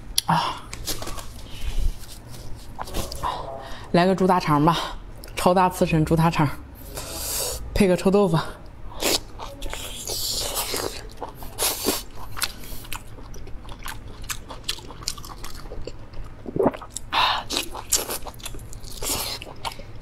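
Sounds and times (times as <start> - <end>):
person chewing meat: 8.9 - 20.0.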